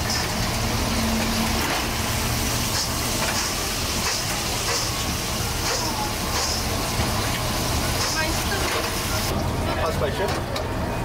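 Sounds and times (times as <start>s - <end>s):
deep fryer oil sizzling: 0.0s - 11.0s.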